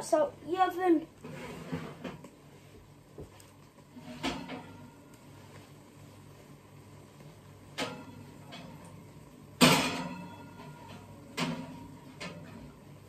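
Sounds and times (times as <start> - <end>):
low steady hum: 0.0 - 13.0
dishes clunking and clattering: 4.0 - 4.9, 7.7 - 9.0, 9.6 - 12.8.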